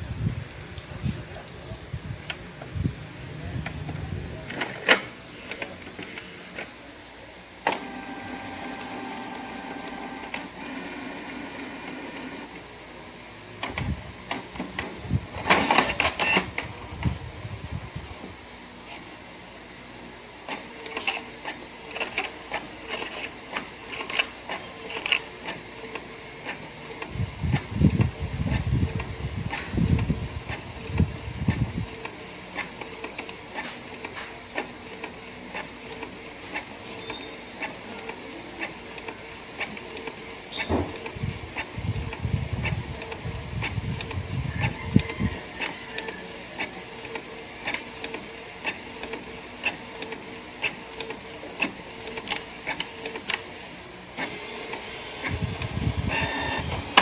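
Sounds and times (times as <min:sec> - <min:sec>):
printer low whirring: 0:00.0 - 0:57.0
printer mechanism clicking: 0:37.6 - 0:53.5.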